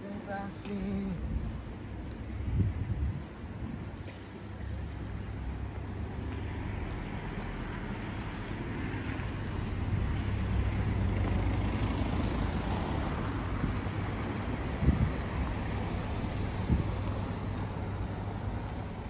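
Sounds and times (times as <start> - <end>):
steady low rumble: 0.0 - 6.1.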